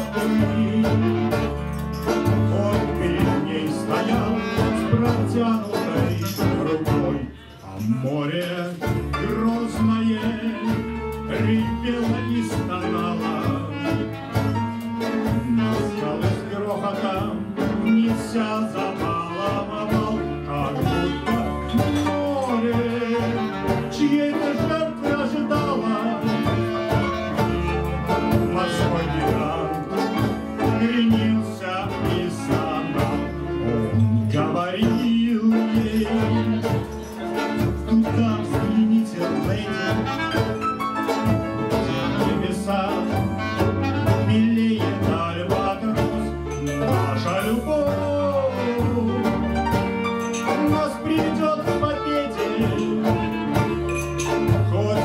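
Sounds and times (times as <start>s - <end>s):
clarinet: 0.0s - 8.0s, 8.7s - 55.0s
double bass: 0.0s - 55.0s
guitar: 0.0s - 55.0s.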